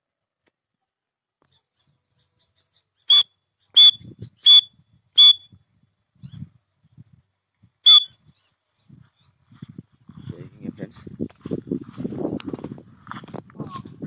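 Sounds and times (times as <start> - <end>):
francolin calling: 1.4 - 5.6, 7.9 - 8.6.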